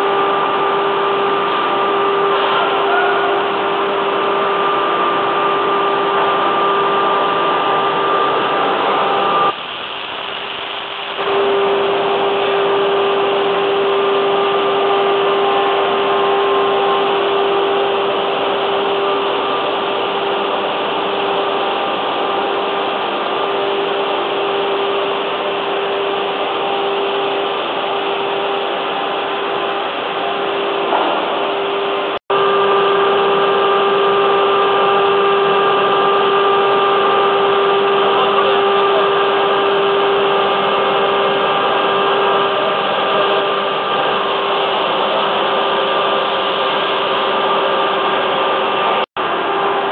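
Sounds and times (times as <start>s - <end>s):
constant pitched hum: 0.0s - 49.9s
woodworking machinery running: 0.0s - 49.9s.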